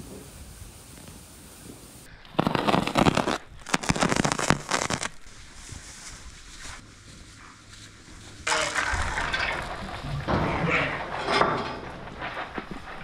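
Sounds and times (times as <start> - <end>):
plastic wrap crackling: 2.3 - 6.8.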